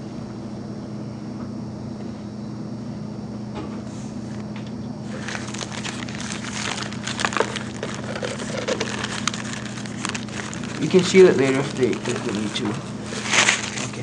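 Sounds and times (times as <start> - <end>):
steady low hum: 0.0 - 14.0
plastic sheets rustling and crinkling: 5.1 - 14.0.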